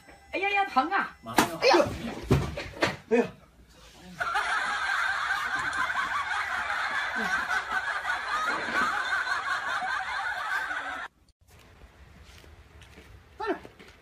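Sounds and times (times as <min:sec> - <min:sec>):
laugh track: 0:04.0 - 0:11.2.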